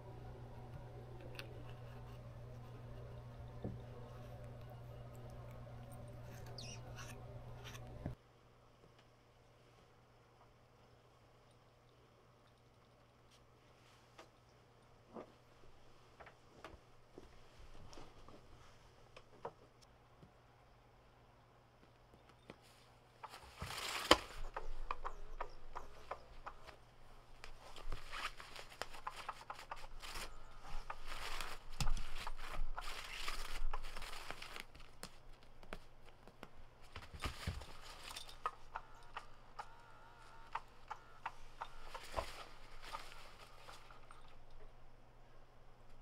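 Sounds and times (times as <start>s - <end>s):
sharp clicks: 24.1s - 26.8s, 38.4s - 42.3s
cat clawing fabric: 27.4s - 38.7s.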